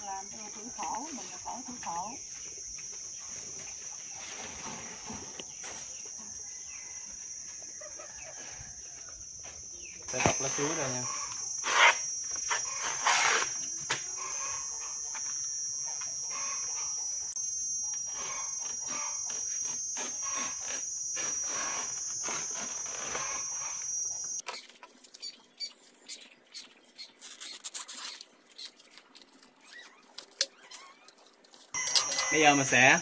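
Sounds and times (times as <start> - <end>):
high insect drone: 0.0 - 33.0
banana leaves crackling and rustling: 18.3 - 23.7, 24.4 - 31.8.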